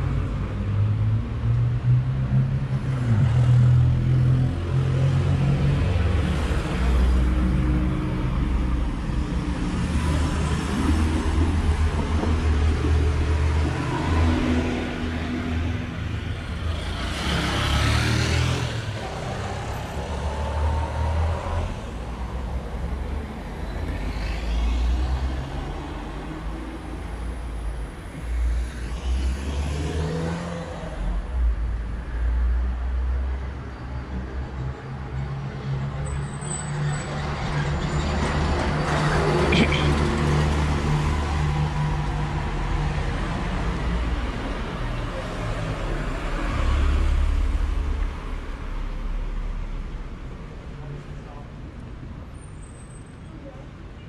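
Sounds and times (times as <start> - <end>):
cars driving past: 0.0 - 51.2.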